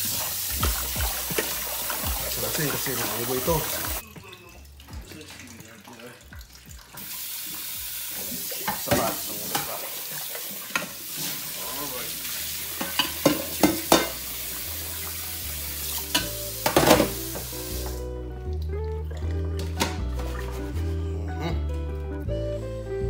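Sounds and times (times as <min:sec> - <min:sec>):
background music with bass: 0:00.0 - 0:07.0, 0:13.5 - 0:23.0
pot and colander clattering: 0:08.4 - 0:11.4, 0:12.7 - 0:14.3, 0:16.1 - 0:17.5
tap running into metal sink: 0:12.8 - 0:14.2, 0:16.1 - 0:18.0.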